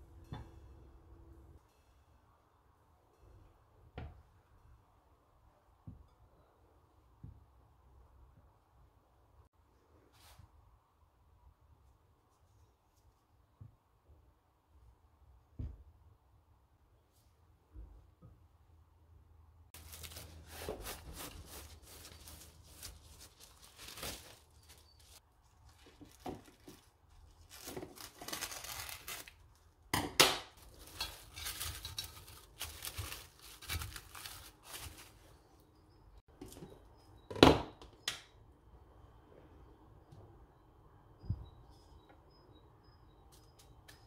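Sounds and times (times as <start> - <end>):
cling film crinkling: 19.8 - 29.6, 30.6 - 35.3
sharp crackles of plastic film: 19.8 - 29.8, 30.5 - 35.3.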